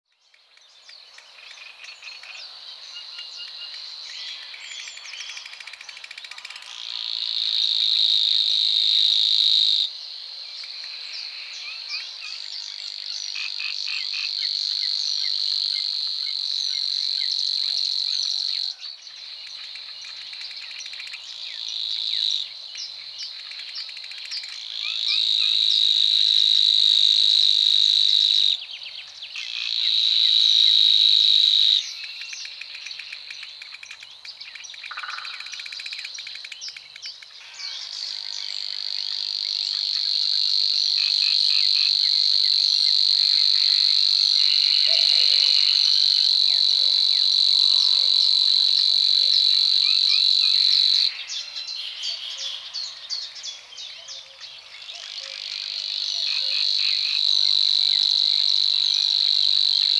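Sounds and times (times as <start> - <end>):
warbler reeling song: 0.1 - 7.6
bird chirps: 31.8 - 39.9.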